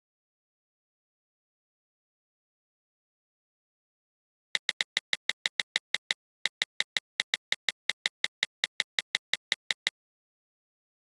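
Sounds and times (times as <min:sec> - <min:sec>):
rapid short clicks: 0:04.6 - 0:09.9.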